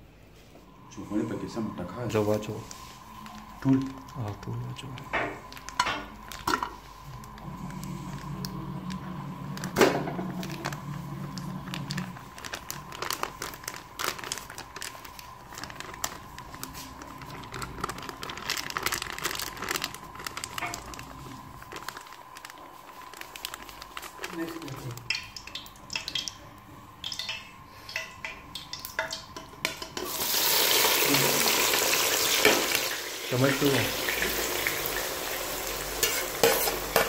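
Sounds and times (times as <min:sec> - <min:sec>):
plastic pouch crinkling: 0:02.0 - 0:26.1.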